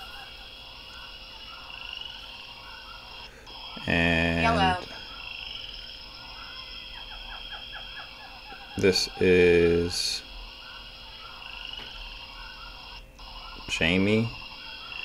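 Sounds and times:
chorus of high animal calls: 0.0 - 15.0
loud low croaking call: 0.0 - 15.0.

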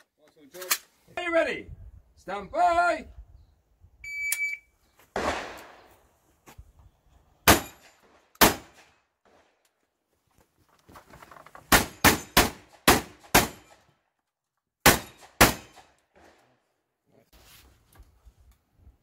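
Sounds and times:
rifle gunshots: 5.2 - 5.9, 7.4 - 8.9, 11.7 - 13.8, 14.8 - 16.3.

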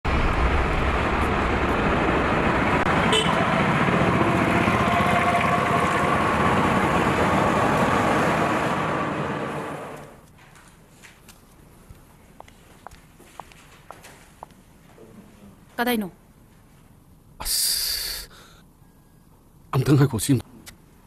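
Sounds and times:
passing vehicles rushing: 0.0 - 10.2.

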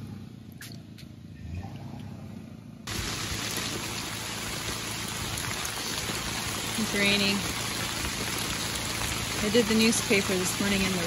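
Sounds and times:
campfire crackling: 2.9 - 11.0
steady rain falling: 2.9 - 11.0.

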